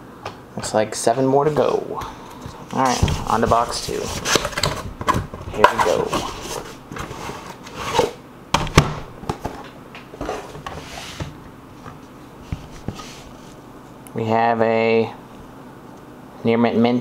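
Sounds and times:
soft sliding hiss: 1.1 - 4.5, 10.2 - 14.2
cardboard box rustling and scraping: 2.8 - 4.9, 5.6 - 8.2, 10.2 - 13.6.

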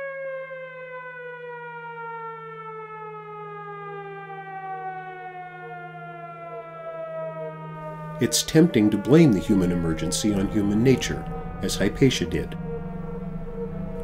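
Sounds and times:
siren falling in pitch: 0.0 - 14.0
steady low hum: 7.8 - 14.0.

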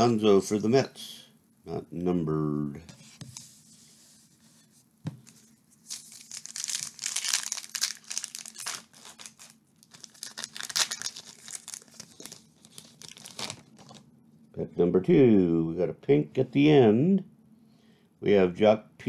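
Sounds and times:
wrapper tearing and crinkling: 5.8 - 14.0.

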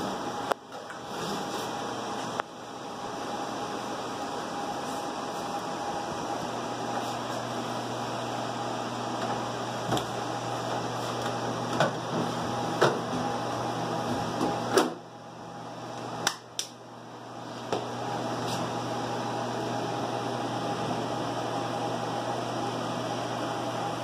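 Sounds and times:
cooling fans humming: 0.0 - 24.0.

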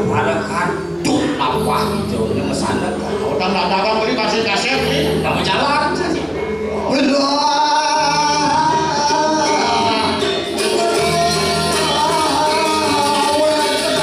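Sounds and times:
jingling percussion: 0.0 - 14.0
wavering gamelan melody: 0.0 - 14.0.

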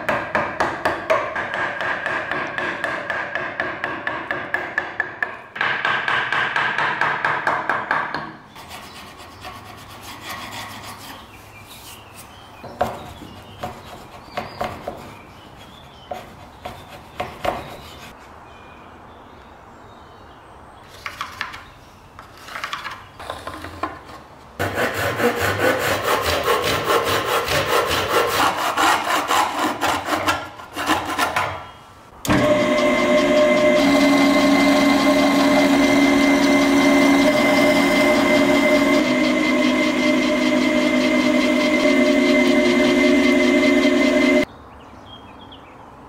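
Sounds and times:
chisel paring wood: 0.0 - 8.3
hand saw cutting wood: 24.6 - 31.5, 32.3 - 44.4
drill press motor humming: 32.2 - 44.4
drill bit drilling into wood: 32.3 - 41.9.

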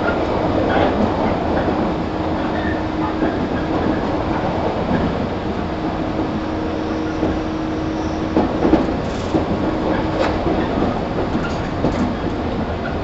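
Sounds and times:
electric train rumbling hum: 0.0 - 13.0
rail-joint clicks: 8.3 - 13.0.

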